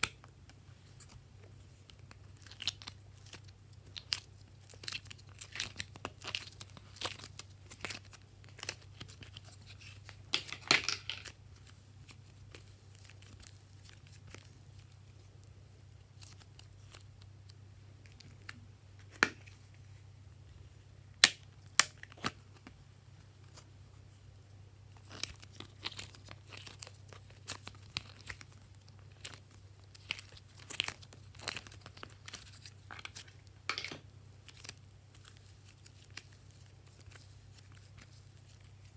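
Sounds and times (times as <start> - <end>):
clay crackling when pressed: 0.0 - 19.8, 21.0 - 23.7, 24.9 - 38.9
faint low hum: 0.0 - 38.9.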